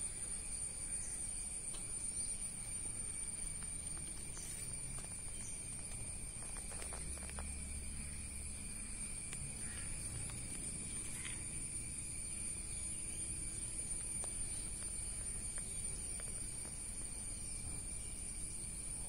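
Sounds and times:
insects chirring: 0.0s - 19.0s
faint ticks: 1.6s - 1.9s, 3.4s - 11.5s, 13.1s - 17.7s.

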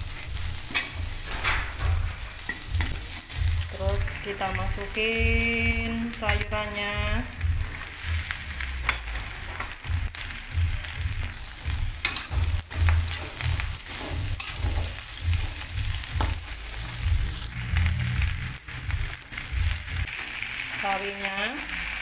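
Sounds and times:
metal spatula scraping wok: 0.0s - 4.4s, 11.6s - 20.8s
cabbage sizzling in hot oil: 0.0s - 22.0s
low rumble: 0.2s - 20.1s.

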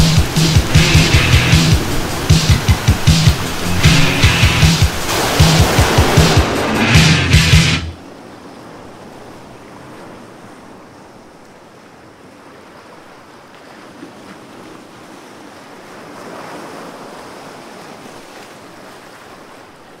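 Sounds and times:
loud rock music: 0.0s - 8.0s
ocean surf on shore: 0.0s - 20.0s.

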